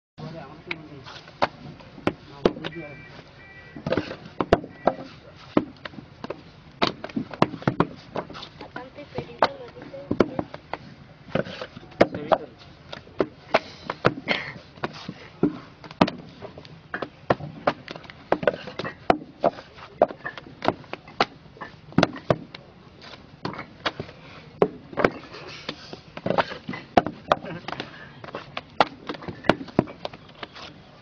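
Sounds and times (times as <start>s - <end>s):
wooden moulds knocked on ground: 3.8s - 8.3s, 15.4s - 16.2s, 17.0s - 22.6s, 26.2s - 28.0s.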